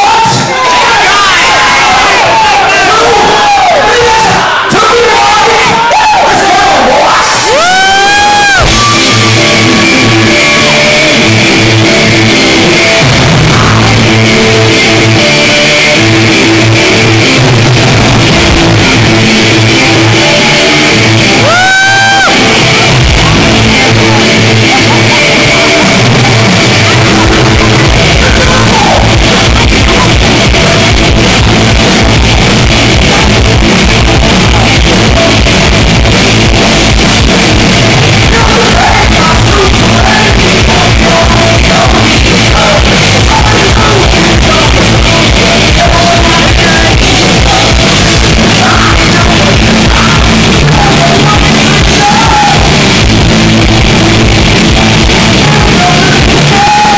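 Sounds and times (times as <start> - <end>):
drums: 0.0 - 56.9
electric guitars: 6.8 - 56.9
person shouting vocals: 27.1 - 30.2.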